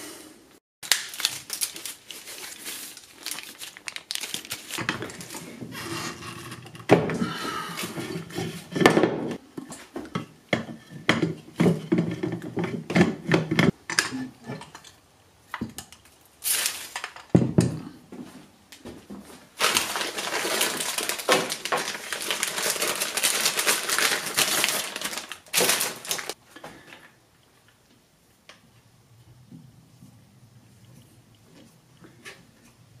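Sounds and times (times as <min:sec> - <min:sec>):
plastic bag crinkling: 0:00.8 - 0:05.5, 0:19.6 - 0:26.4.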